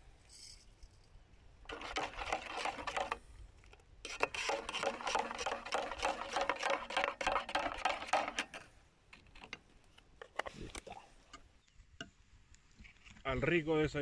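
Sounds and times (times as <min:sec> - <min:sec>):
spoon stirring in metal mug: 0:01.7 - 0:03.2, 0:04.1 - 0:08.6.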